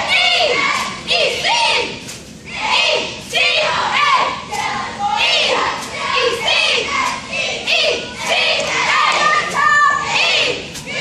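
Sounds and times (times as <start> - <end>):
girls shouting a cheer in unison: 0.0 - 11.0.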